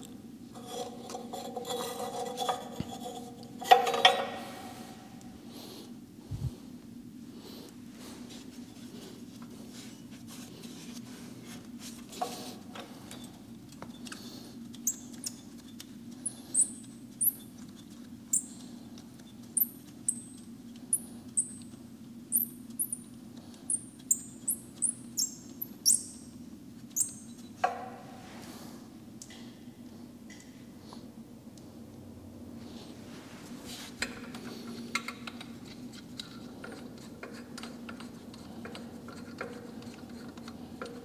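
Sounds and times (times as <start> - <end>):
bolt squeaking: 26.9 - 27.5.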